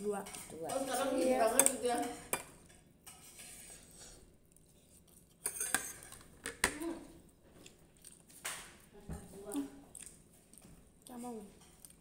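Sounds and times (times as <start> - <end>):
dishes and cutlery clinking: 0.1 - 4.2, 5.4 - 6.9.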